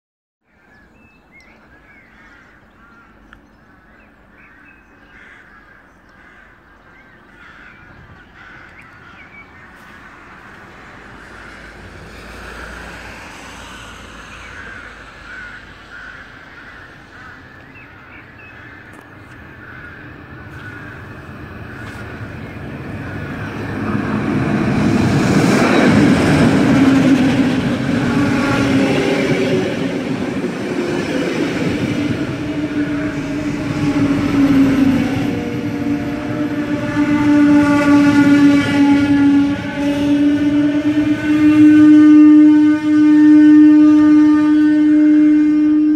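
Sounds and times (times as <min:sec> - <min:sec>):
birds calling: 0:00.5 - 0:11.8, 0:14.2 - 0:36.8
train rumbling into station: 0:09.1 - 0:45.9.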